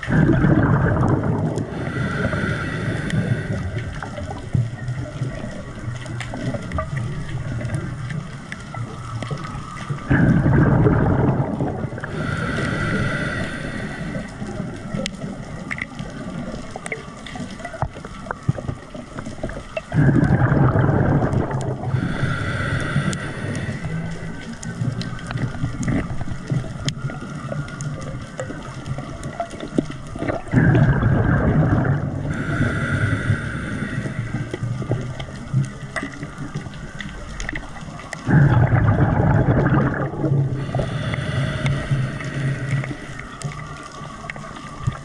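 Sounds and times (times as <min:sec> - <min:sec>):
underwater breathing bubbles: 0:00.0 - 0:45.0
water noise: 0:00.0 - 0:45.0
soft hiss: 0:11.8 - 0:19.8, 0:21.7 - 0:30.5, 0:32.1 - 0:38.3, 0:40.5 - 0:45.0.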